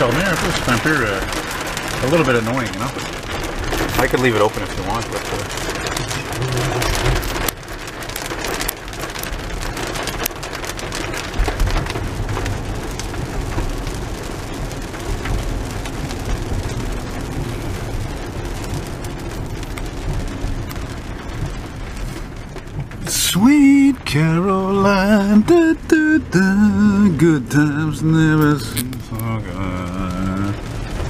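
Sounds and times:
rain drops on car windshield: 0.0 - 31.0
low rumble: 9.4 - 31.0.

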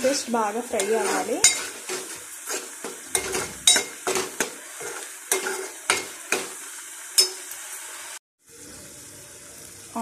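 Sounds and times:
onion paste sizzling in oil: 0.0 - 10.0
spoon scraping metal pan: 0.5 - 6.6.

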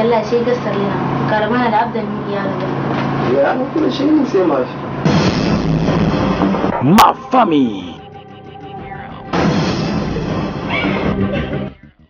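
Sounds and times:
trailer music: 4.9 - 12.0
loud noisy hit: 5.0 - 7.2.

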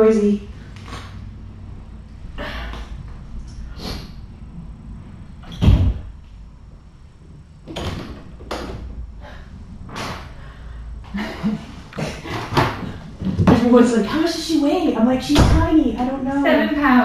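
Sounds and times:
loud thud: 5.5 - 6.2, 15.3 - 15.8.

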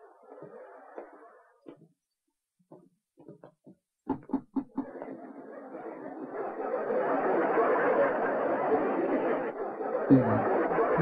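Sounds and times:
laugh track audience laughter: 4.3 - 11.0.

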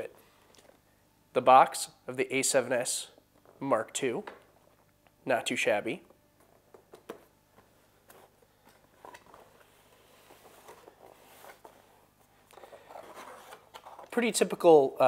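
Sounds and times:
cardboard rustling and scraping: 8.0 - 14.5.

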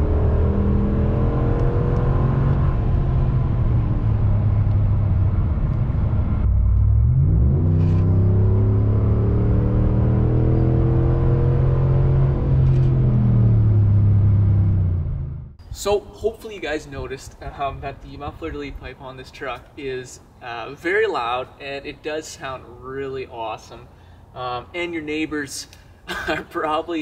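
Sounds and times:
engine running loud exhaust: 0.0 - 15.6.

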